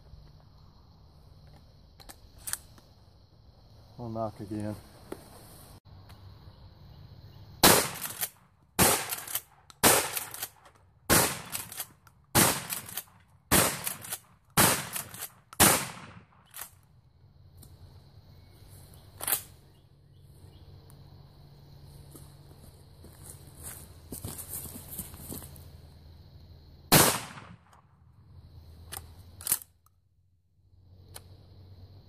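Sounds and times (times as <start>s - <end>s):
loud shotgun shots: 7.6s - 10.5s, 11.1s - 11.7s, 12.3s - 16.4s, 26.9s - 27.7s
weaker sharp crack: 7.6s - 16.7s, 26.9s - 27.9s.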